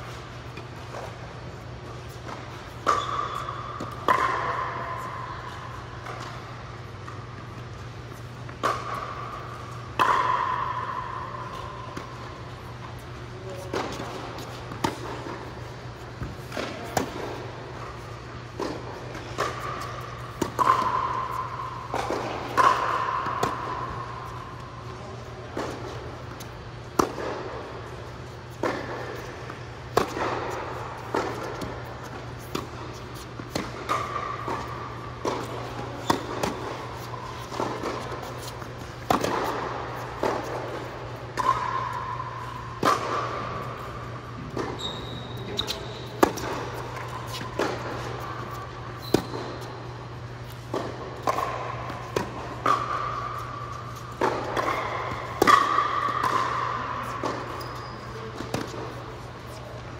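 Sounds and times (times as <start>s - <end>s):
steady low hum: 0.0s - 59.9s
short squeaks: 44.7s - 46.2s.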